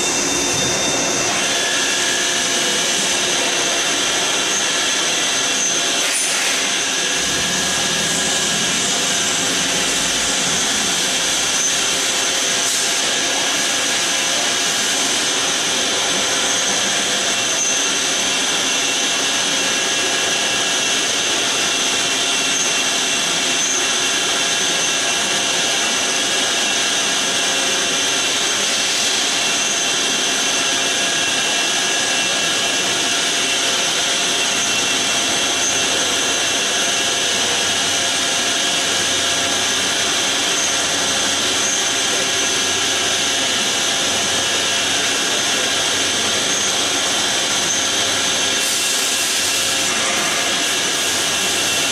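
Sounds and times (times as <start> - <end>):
high whine: 0.0 - 51.9
lathe machine noise: 0.0 - 51.9.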